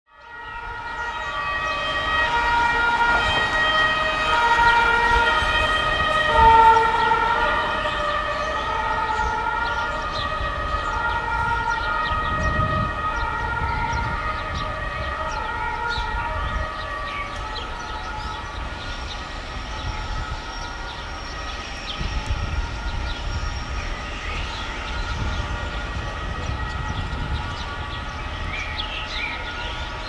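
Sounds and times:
locomotive air horns: 0.5 - 10.0.

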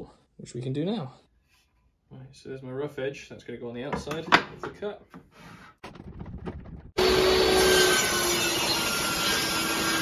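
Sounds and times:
table saw cutting board: 7.0 - 10.0.

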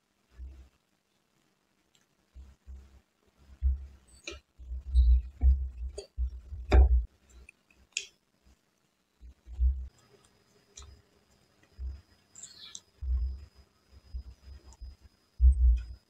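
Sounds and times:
low thumps: 3.6 - 4.0, 4.6 - 7.1, 13.0 - 13.5, 14.1 - 16.0.

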